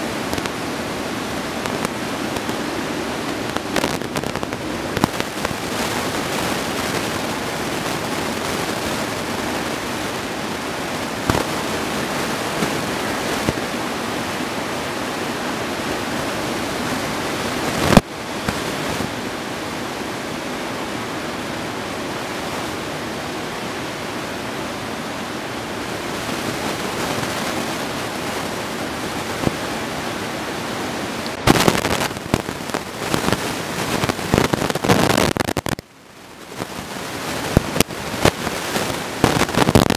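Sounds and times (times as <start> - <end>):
ocean surf breaking: 0.0 - 39.9
sharp pops: 3.3 - 5.6, 11.3 - 11.5, 31.4 - 33.4, 34.0 - 35.8, 39.2 - 39.9.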